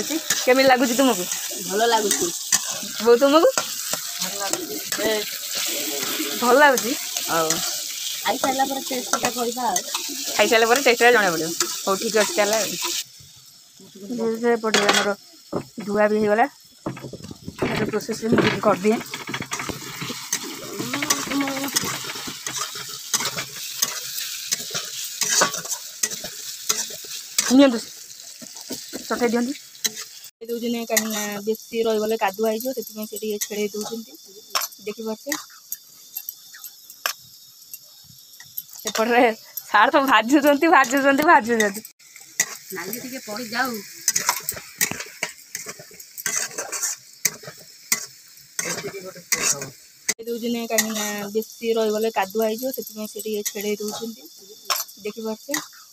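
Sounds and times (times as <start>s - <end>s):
metal spatula scraping pan: 0.0s - 13.0s, 17.7s - 29.0s, 42.4s - 49.8s
noodles sizzling in oil: 0.0s - 55.9s
metal spatula clicking on pan: 44.0s - 49.7s, 54.7s - 55.8s.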